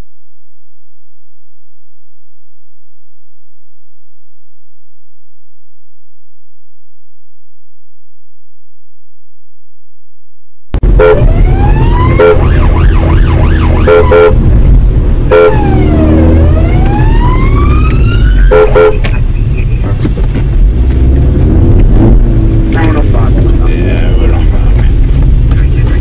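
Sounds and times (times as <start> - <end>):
police siren wailing: 10.8 - 14.4, 15.3 - 19.1
siren horn blasts: 10.8 - 14.6, 15.2 - 19.3
car engine and road rumble: 10.8 - 26.0.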